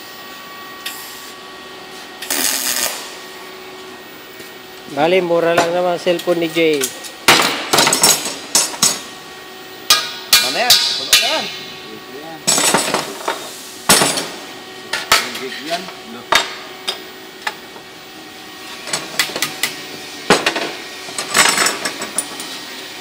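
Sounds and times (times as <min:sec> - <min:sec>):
hammer striking metal bar: 0:09.9 - 0:11.6.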